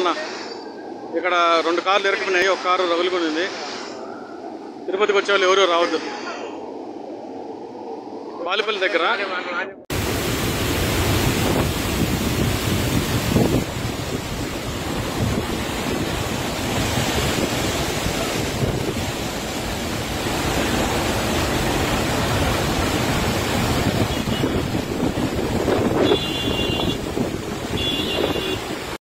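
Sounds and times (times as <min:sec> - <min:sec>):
floodwater rushing: 0:09.9 - 0:29.0.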